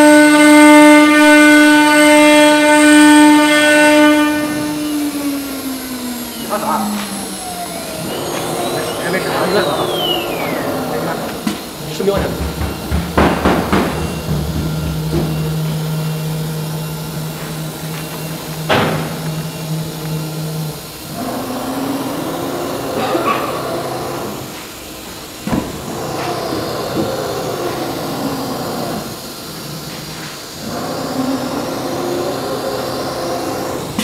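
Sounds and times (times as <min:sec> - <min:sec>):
machine hum: 0:00.0 - 0:34.0
motor whines rising and falling: 0:00.0 - 0:34.0
sharp knock: 0:12.2 - 0:15.5.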